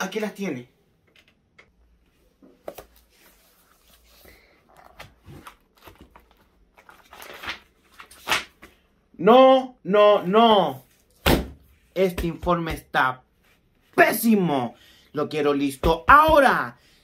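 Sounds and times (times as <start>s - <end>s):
pages turning: 2.5s - 8.9s
paper rustling: 2.6s - 8.8s.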